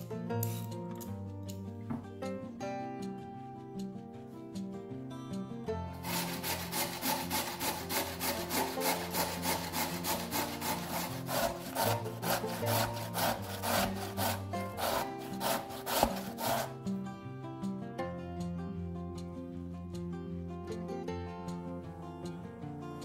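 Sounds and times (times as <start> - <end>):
soft background music: 0.0 - 23.0
potato grated on steel grater: 6.0 - 16.8.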